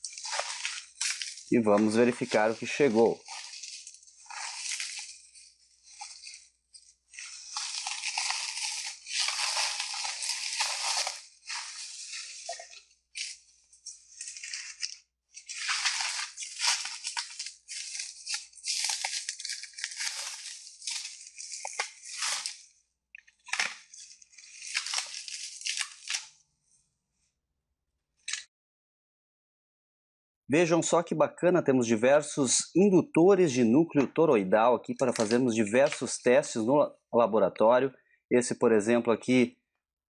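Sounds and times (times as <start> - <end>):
bubble wrap crinkling: 0.0 - 26.4, 35.0 - 36.6.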